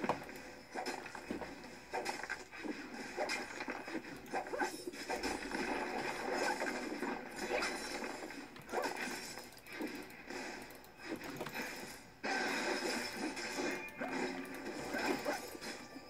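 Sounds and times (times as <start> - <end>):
computer game sound effects: 4.4 - 16.0.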